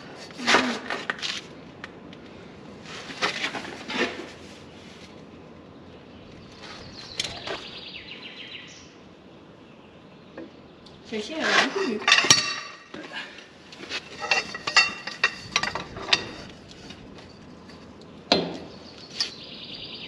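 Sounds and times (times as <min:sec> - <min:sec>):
socket wrench clanking: 0:14.2 - 0:16.5.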